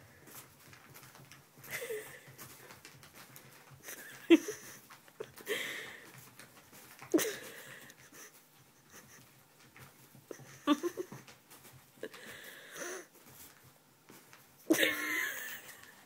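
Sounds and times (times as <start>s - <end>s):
person laughing breathily: 1.6s - 2.4s, 3.8s - 6.1s, 7.1s - 9.4s, 10.3s - 11.3s, 12.0s - 13.1s, 14.7s - 16.0s.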